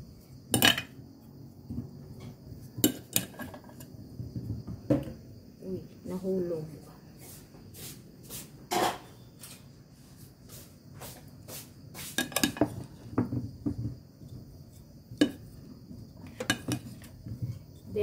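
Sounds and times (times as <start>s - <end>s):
dishes clinking and knocking: 0.5s - 0.9s, 2.2s - 5.2s, 8.7s - 9.2s, 12.1s - 14.4s, 15.1s - 17.6s.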